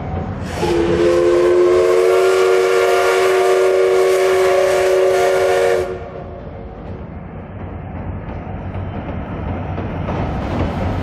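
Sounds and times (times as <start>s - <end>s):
moving train rumble: 0.0s - 11.0s
steam whistle blast: 0.5s - 6.2s.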